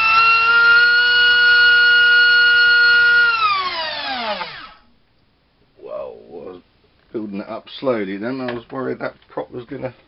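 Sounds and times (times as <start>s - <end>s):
electric motor and propeller whine: 0.0s - 4.8s.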